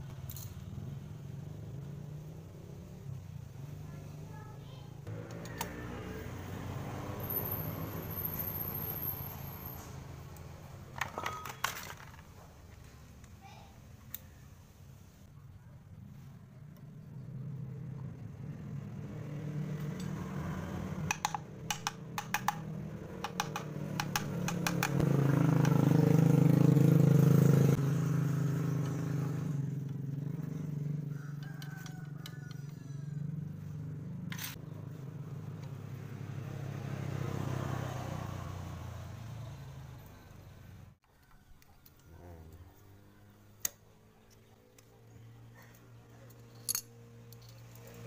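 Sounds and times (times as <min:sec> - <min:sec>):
motorcycle engine running: 0:15.9 - 0:41.0
sharp metallic clicks: 0:21.1 - 0:25.8.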